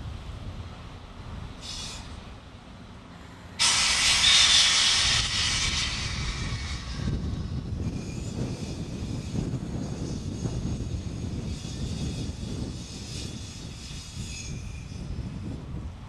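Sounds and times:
compressed air hissing: 1.6s - 2.2s, 3.6s - 9.4s.

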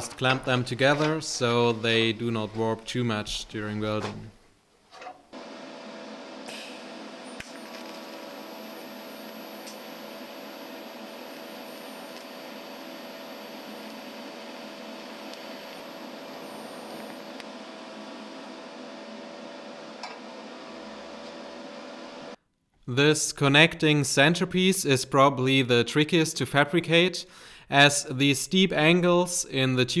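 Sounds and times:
faint high whine: 5.4s - 19.3s
welding arc hissing: 6.4s - 17.5s.

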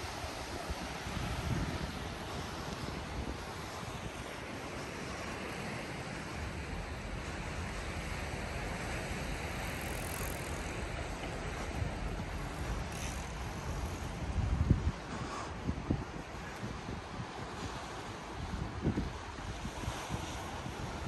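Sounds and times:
even wash of outdoor noise: 0.0s - 21.0s
wind rumble on microphone: 0.0s - 21.0s.

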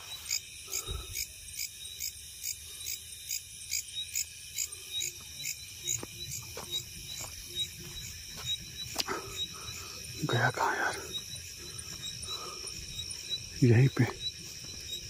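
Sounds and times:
night insects chirping: 0.0s - 15.0s.

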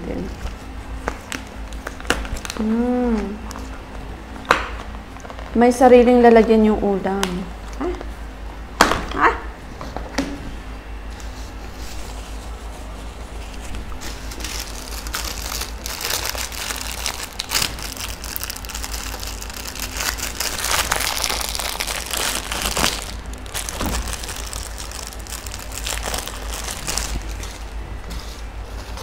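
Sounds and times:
plastic packaging crinkling: 1.0s - 2.9s, 12.1s - 29.0s.

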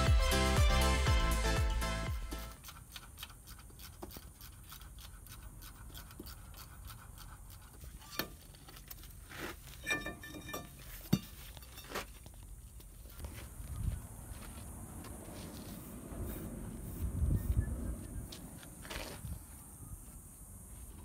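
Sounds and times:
metal clinks and scrapes: 7.6s - 12.5s.

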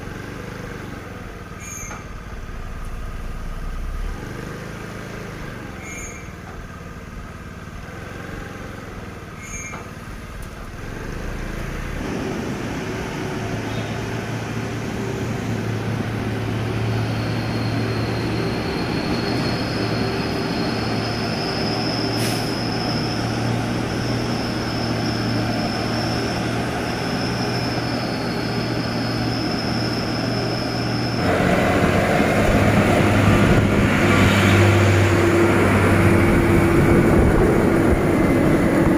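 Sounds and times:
diesel trucks driving past: 0.0s - 38.9s
thin high whine: 12.0s - 34.8s.

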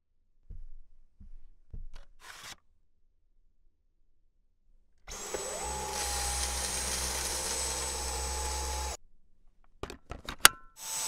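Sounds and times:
vacuum motor whining: 5.1s - 9.0s.

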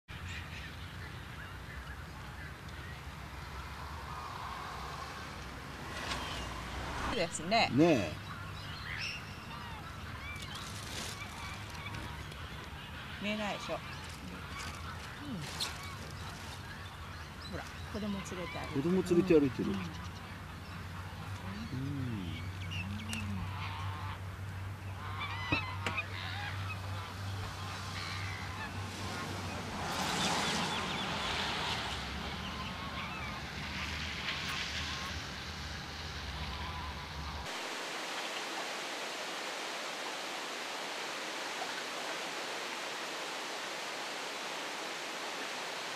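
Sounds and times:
waterfowl honking: 0.2s - 35.4s, 36.2s - 37.5s
outdoor hiss: 0.2s - 45.9s.

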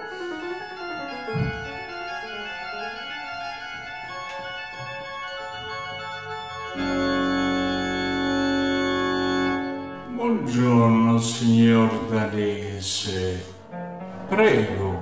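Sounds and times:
organ chords: 0.0s - 15.0s.

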